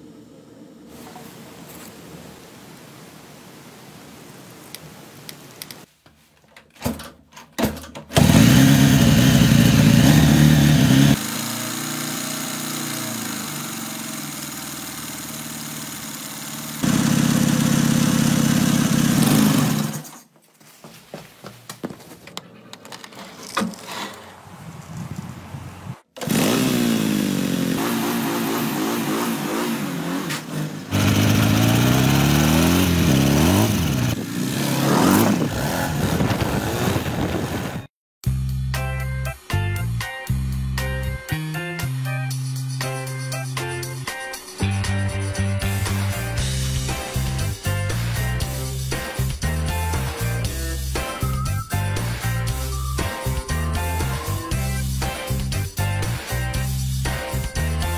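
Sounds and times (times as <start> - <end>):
motorcycle engine revving: 8.1 - 20.1, 26.0 - 37.8.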